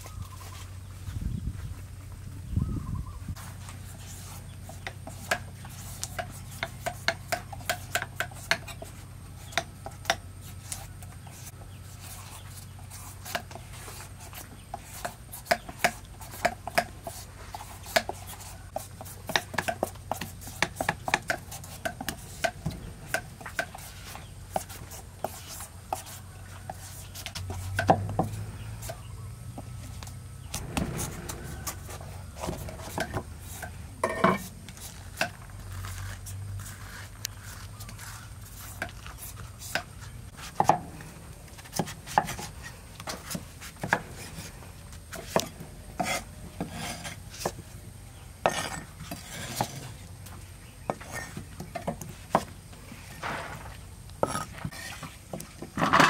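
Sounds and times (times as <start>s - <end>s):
knife scraping and slicing fruit skin: 3.4s - 29.1s, 30.4s - 40.9s, 41.6s - 47.6s, 48.4s - 50.1s
steady low hum: 19.9s - 51.8s.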